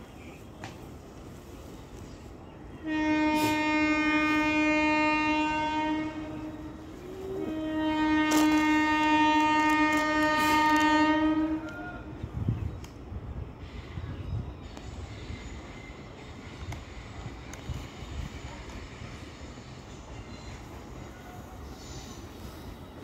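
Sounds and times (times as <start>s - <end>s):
train horn blasts: 2.8s - 12.1s.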